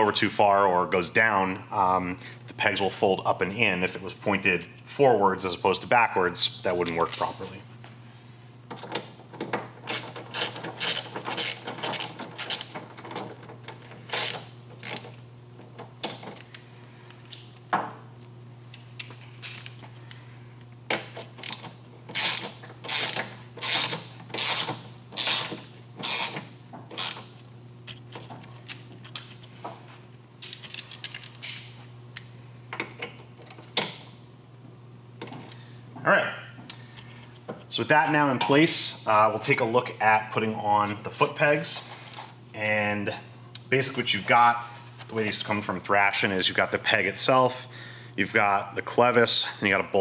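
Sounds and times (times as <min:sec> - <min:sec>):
hand ratchet clicking: 0:08.7 - 0:15.2, 0:21.4 - 0:27.3.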